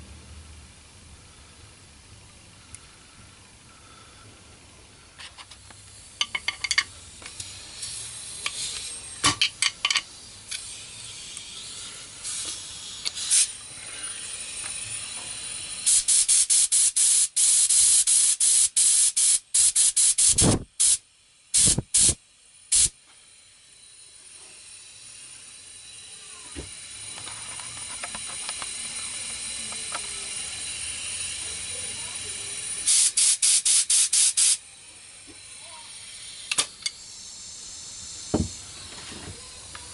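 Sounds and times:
air blow gun blasts: 0:19.6 - 0:21.0, 0:21.6 - 0:22.9
whistling hiss of escaping air: 0:21.6 - 0:39.8.

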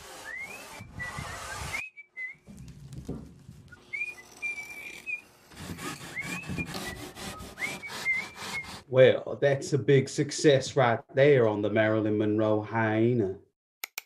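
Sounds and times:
person whistling a tune: 0:00.2 - 0:02.5, 0:03.8 - 0:05.2, 0:06.0 - 0:08.8
rough rubbing and scraping: 0:02.4 - 0:08.9.

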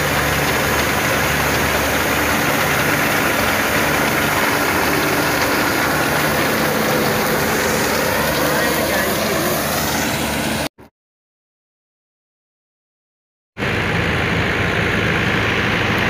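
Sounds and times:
harvester engine humming: 0:00.0 - 0:10.7, 0:13.6 - 0:16.0.

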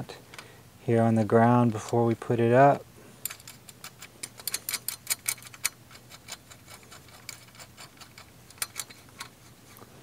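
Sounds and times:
metal bolts clicking as tightened: 0:03.2 - 0:09.4.

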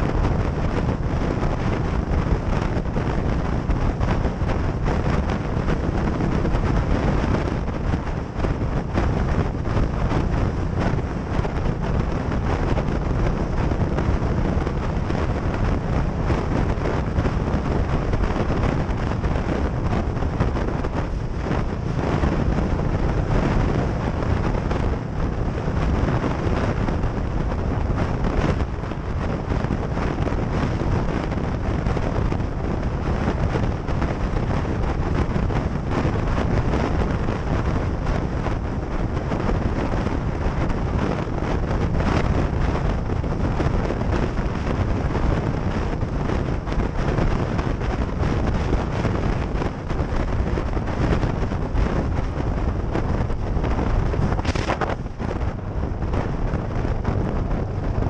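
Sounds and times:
wind buffeting microphone: 0:00.0 - 0:58.0
motorcycle engine running: 0:00.1 - 0:34.0.

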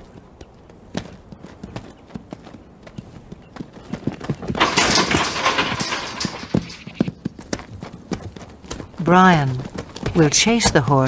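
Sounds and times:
hoofbeats on dirt: 0:00.0 - 0:11.0.

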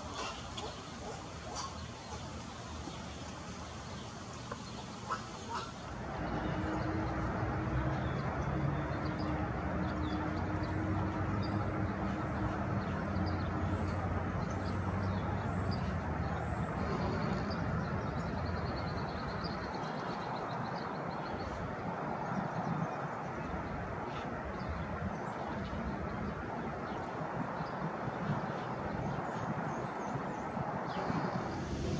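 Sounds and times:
low engine drone: 0:05.7 - 0:20.0, 0:30.7 - 0:31.9.

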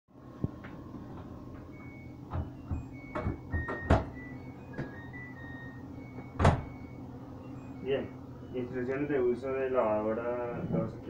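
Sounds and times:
steady low hum: 0:00.1 - 0:11.0
knocks and clunks at washing machine: 0:00.6 - 0:05.0, 0:06.1 - 0:06.8
short high-pitched tones: 0:01.7 - 0:08.8.

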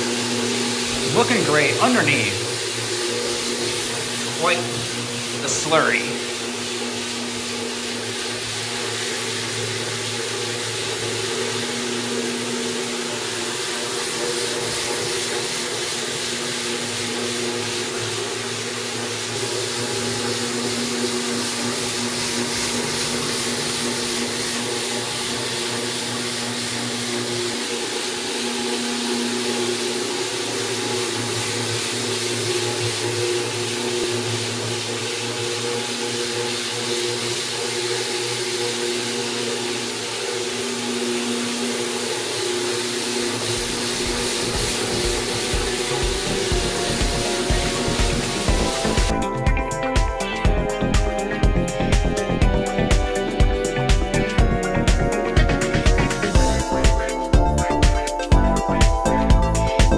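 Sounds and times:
floor grinding machine: 0:00.0 - 0:59.9.

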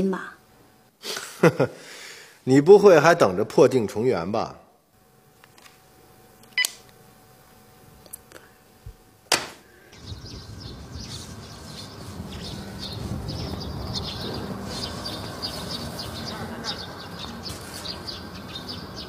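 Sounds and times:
birds chirping: 0:10.0 - 0:19.0.

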